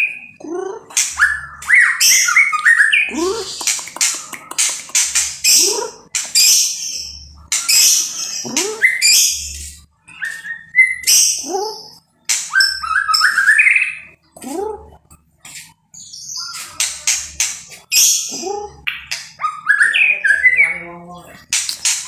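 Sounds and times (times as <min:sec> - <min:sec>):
bird singing whistles and chirps: 0:01.2 - 0:03.1, 0:12.5 - 0:14.1.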